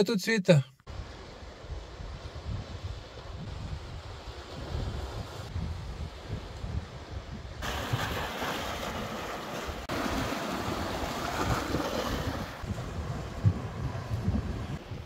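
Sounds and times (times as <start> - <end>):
wind rumbling on microphone: 0.9 - 15.0
surf washing over rocks: 7.6 - 15.0.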